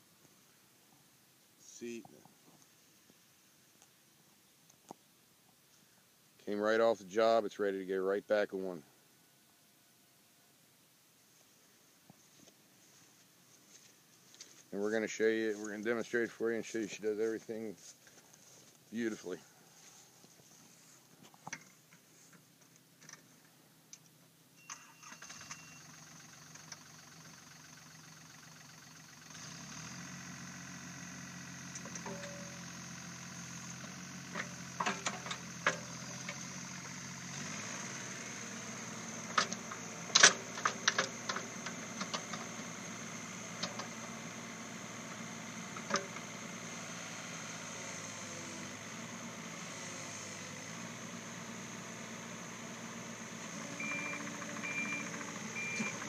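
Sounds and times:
short beep: 24.6s - 25.9s, 53.8s - 56.0s
excavator diesel engine: 25.0s - 56.0s.

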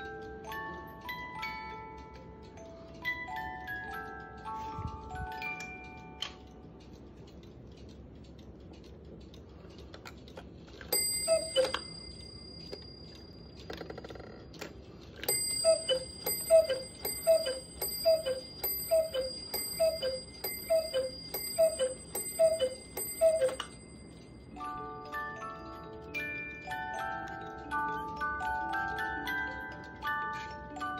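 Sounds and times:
cuckoo clock calls: 10.9s - 30.9s
steady ringing: 15.2s - 27.2s.

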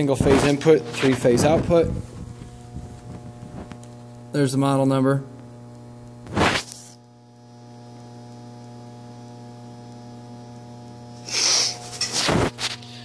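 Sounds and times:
electrical mains hum: 0.0s - 13.0s
brief scuffing noise: 11.8s - 12.8s.

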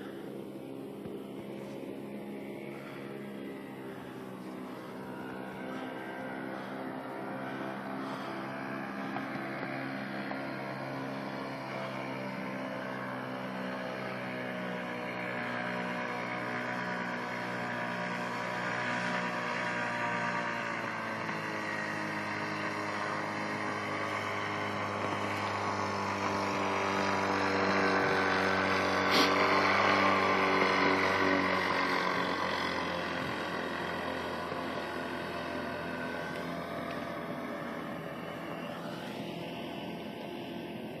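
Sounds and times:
paramotor engine and propeller: 0.0s - 41.0s.

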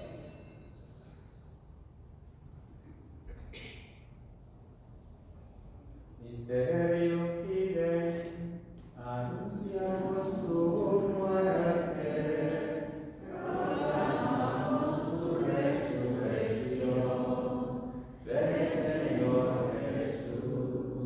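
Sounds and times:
chant-like liturgical singing: 6.4s - 21.0s.

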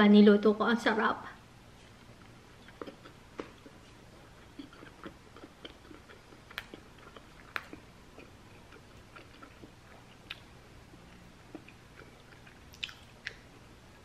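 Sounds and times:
person chewing: 1.8s - 13.6s.

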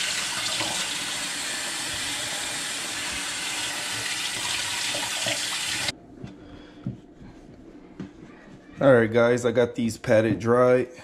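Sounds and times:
faucet running into steel sink: 0.0s - 5.9s.

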